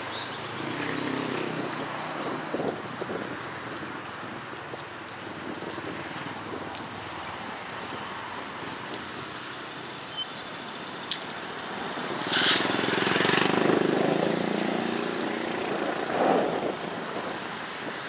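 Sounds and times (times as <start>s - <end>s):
outdoor street noise: 0.0s - 18.0s
vehicle engine passing by: 12.0s - 16.8s.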